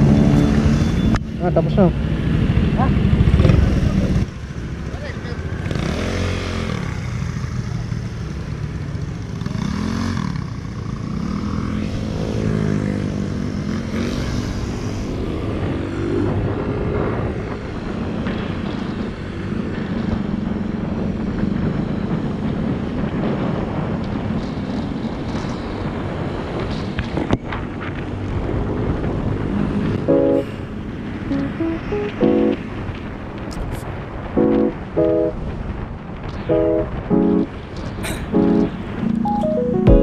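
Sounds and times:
motorcycle engine revving: 5.4 - 7.6
steady rushing noise: 30.0 - 40.0.

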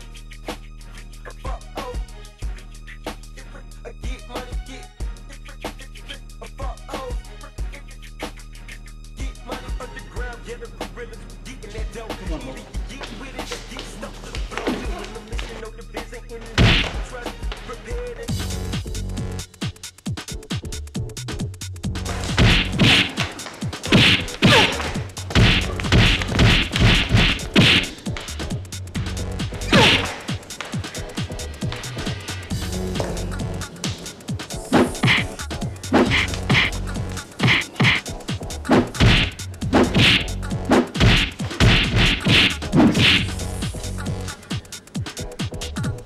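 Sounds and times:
hip-hop beat with deep bass: 0.0 - 46.0
punch and kick impacts: 16.6 - 17.1, 22.1 - 28.3, 29.6 - 30.4, 34.7 - 36.7, 37.4 - 38.0, 38.7 - 43.4
whooshes: 22.2 - 28.4.

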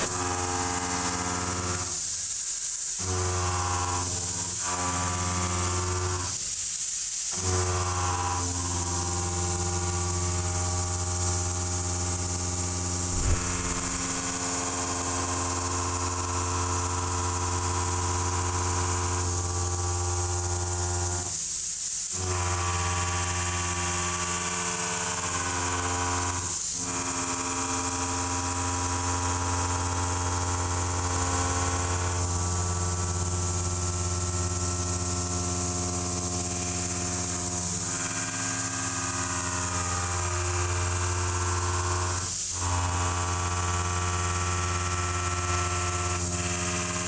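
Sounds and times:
milling cutter cutting steel: 0.0 - 1.8, 13.1 - 14.7
high hiss: 12.8 - 15.0.

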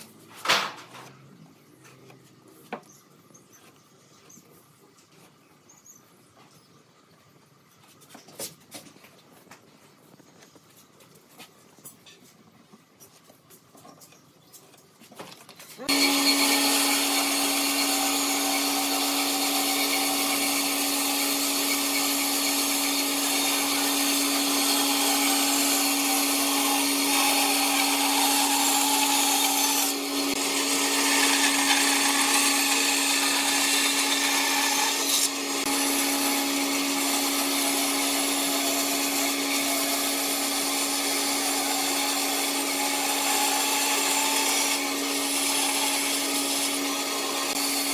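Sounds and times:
band saw cutting wood: 15.8 - 47.9.

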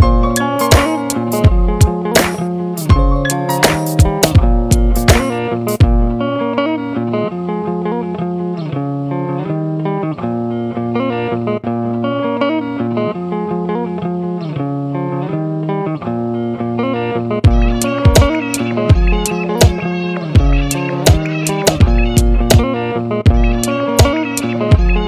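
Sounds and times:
drums: 0.0 - 6.1, 17.5 - 19.8, 20.4 - 22.7, 23.3 - 25.0
guitar music: 0.0 - 25.0.

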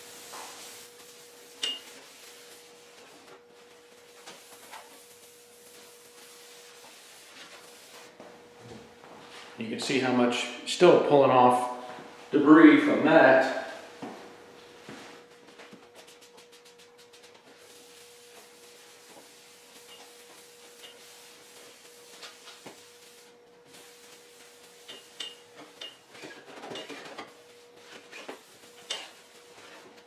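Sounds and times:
spray bottle sprays: 0.0 - 3.1, 3.9 - 8.1, 16.0 - 25.8.

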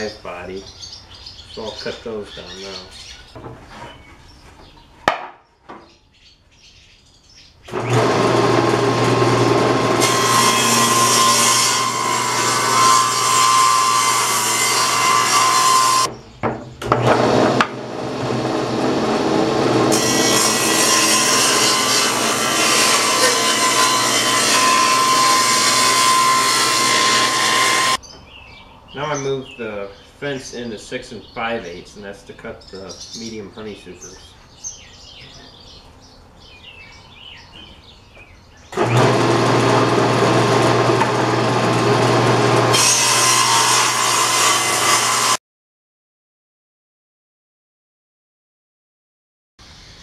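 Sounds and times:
table saw cutting wood: 7.7 - 16.1, 16.8 - 28.0, 38.8 - 45.4.

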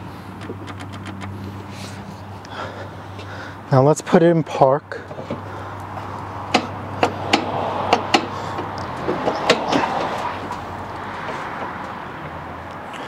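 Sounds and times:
lever and pedal clicks and clunks: 0.3 - 1.5, 5.1 - 10.6.

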